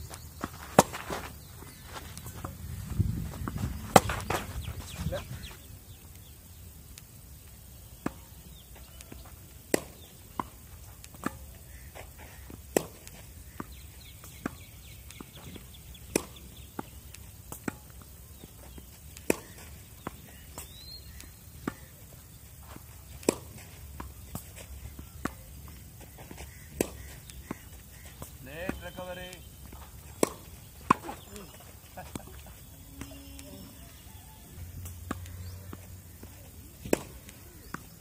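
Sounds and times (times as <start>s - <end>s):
tennis ball struck by racquet: 0.6s - 1.3s, 2.2s - 5.6s, 9.7s - 18.4s, 19.2s - 21.9s, 22.7s - 32.4s, 34.8s - 37.9s
ball bouncing on court: 2.2s - 5.2s, 26.5s - 33.4s, 34.8s - 37.9s.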